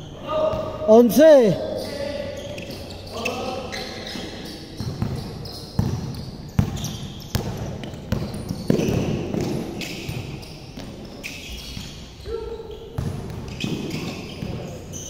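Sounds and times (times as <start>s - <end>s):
sneaker squeaks: 1.6s - 15.0s
basketball bouncing on court: 3.7s - 12.0s, 13.0s - 14.7s.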